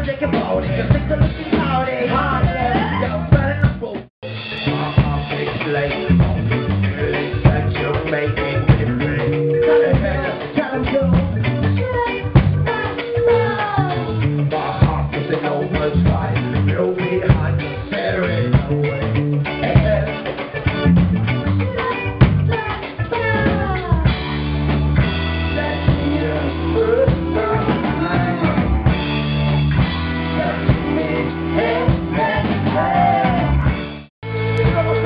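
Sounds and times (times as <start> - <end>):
men singing: 0.0 - 3.8, 4.5 - 20.4, 25.4 - 28.8, 30.3 - 33.6
live band playing: 0.0 - 35.0.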